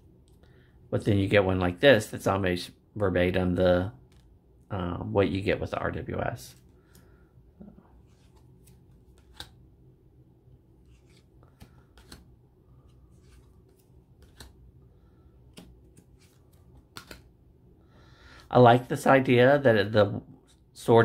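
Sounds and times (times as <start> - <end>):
cards snapping and sliding: 8.0 - 9.6, 10.8 - 14.6, 15.4 - 17.3.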